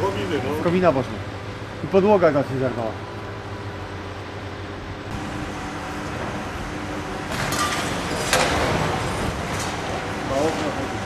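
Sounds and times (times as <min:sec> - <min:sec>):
excavator engine running: 0:03.0 - 0:10.3.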